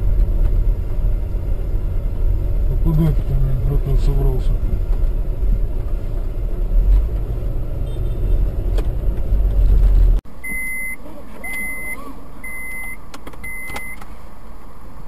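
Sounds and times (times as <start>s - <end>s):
car driving rumble: 0.0s - 15.0s
pedestrian crossing beeps: 10.4s - 14.0s.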